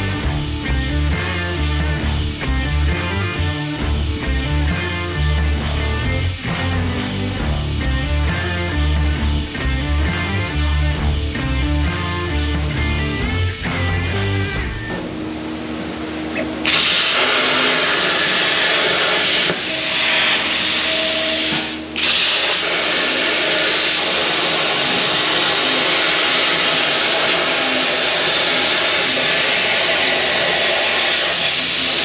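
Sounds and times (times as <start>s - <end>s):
plasma torch cutting hiss: 16.6s - 32.0s.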